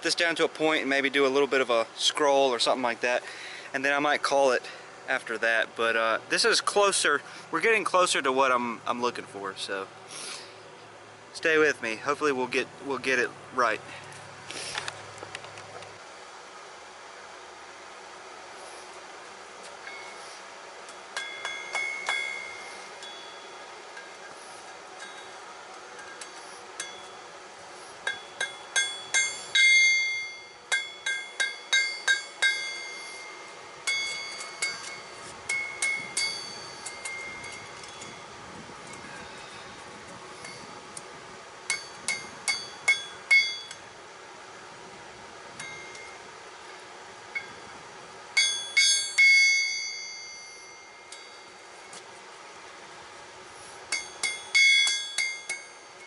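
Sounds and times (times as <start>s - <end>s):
hammer striking steel on anvil: 21.1s - 24.3s, 26.0s - 27.3s, 28.0s - 38.2s, 41.7s - 43.8s, 48.4s - 51.6s, 53.9s - 56.0s.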